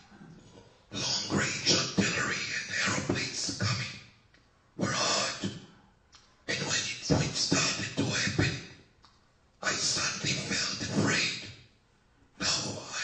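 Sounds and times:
person speaking: 0.0s - 4.0s, 4.8s - 5.7s, 6.5s - 8.6s, 9.6s - 11.5s, 12.4s - 13.0s.

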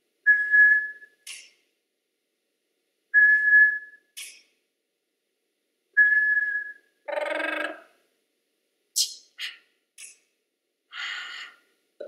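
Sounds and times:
whistled tone: 0.3s - 1.3s, 3.2s - 4.1s, 6.0s - 6.9s.

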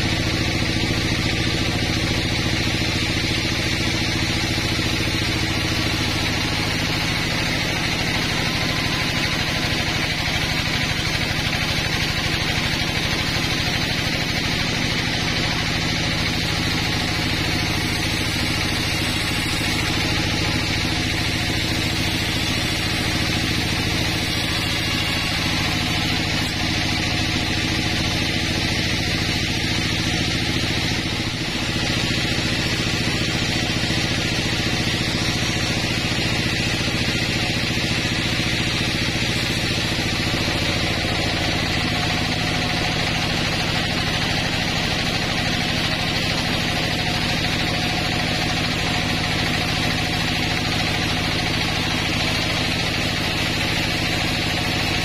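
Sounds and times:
sawmill machine hum: 0.0s - 55.0s
saw blade hissing through log: 0.5s - 49.0s.

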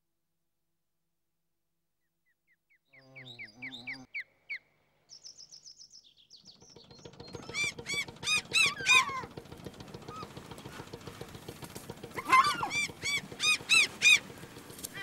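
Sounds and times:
boat engine drone: 6.4s - 15.0s
gulls calling: 6.4s - 15.0s.

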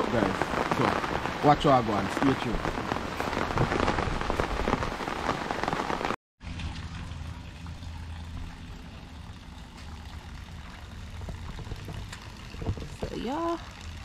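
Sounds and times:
rain falling: 0.0s - 14.0s.

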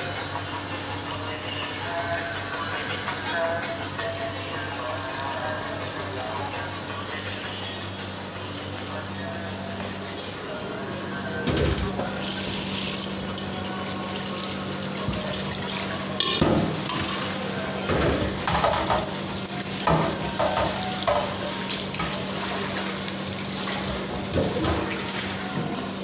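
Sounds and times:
metal bowl clanking against sink: 16.2s - 19.2s, 19.8s - 22.3s, 23.7s - 25.8s.

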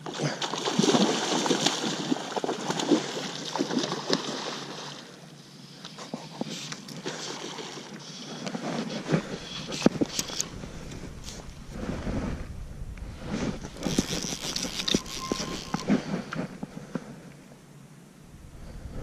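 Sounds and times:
fish splashing in water: 0.0s - 5.1s.

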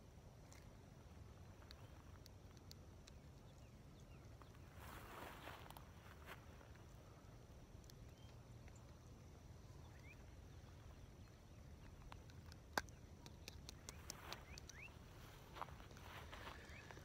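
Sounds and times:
small sharp clicks: 1.6s - 3.7s, 11.8s - 14.9s.

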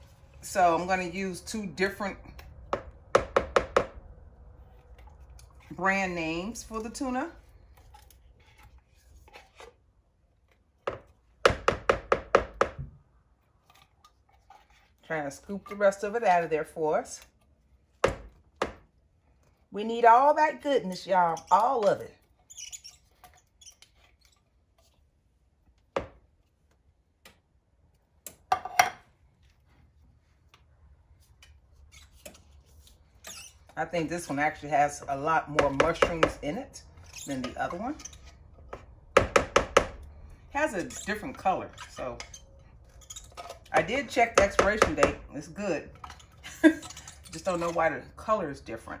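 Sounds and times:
soup being scraped out: 40.7s - 43.7s.

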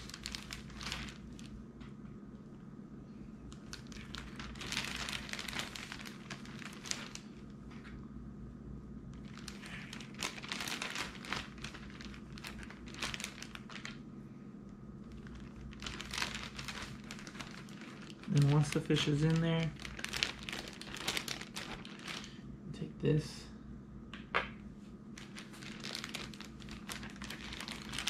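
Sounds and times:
plastic bag crinkling: 0.0s - 1.6s, 3.5s - 7.6s, 9.1s - 14.0s, 15.0s - 22.4s, 25.1s - 28.0s.

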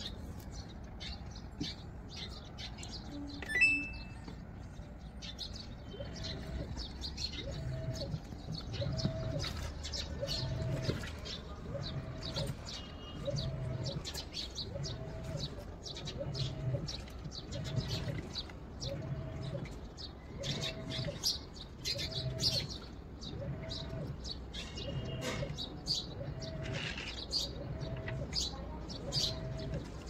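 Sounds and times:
birds chirping: 0.0s - 30.0s
short beep: 3.4s - 4.2s
washing machine motor whining: 5.9s - 30.0s.

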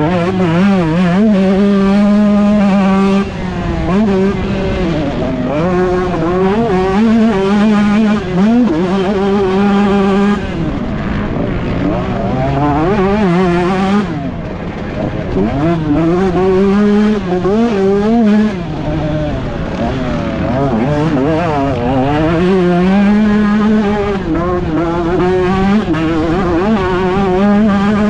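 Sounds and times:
motocross engine revving: 0.0s - 28.0s.

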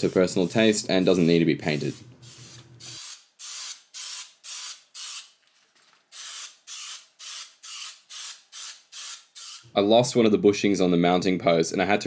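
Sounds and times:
spray paint can hissing: 0.0s - 5.3s, 6.1s - 9.7s.

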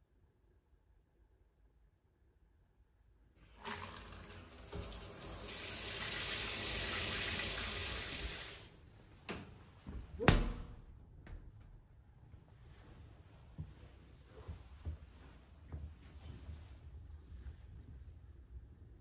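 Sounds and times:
shower head spraying water: 4.7s - 8.8s.

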